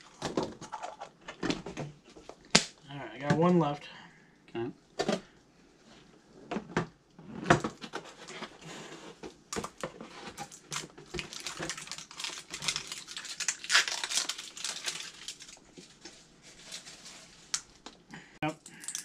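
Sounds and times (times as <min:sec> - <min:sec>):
packaging crinkling and rustling: 0:07.5 - 0:18.1.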